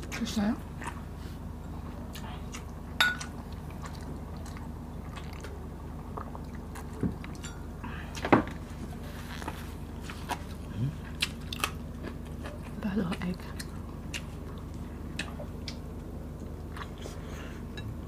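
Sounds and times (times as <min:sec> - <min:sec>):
low steady hum: 0:00.0 - 0:18.0
drinking and eating sounds: 0:00.8 - 0:08.3.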